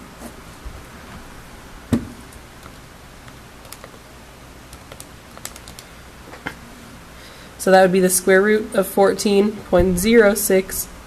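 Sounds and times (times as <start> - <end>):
calculator keys clicking: 4.7 - 5.9.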